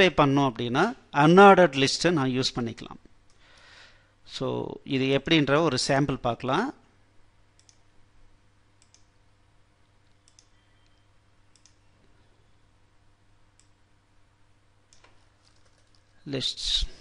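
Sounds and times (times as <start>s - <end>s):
faint steady hum: 0.0s - 17.0s
computer mouse clicks: 7.6s - 7.8s, 8.8s - 9.1s, 10.1s - 11.9s, 14.9s - 16.0s.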